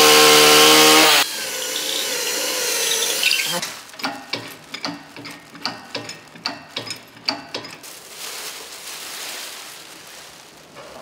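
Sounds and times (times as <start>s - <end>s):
sharp clicks and knocks: 3.6s - 7.8s
sheet rustling: 7.8s - 11.0s.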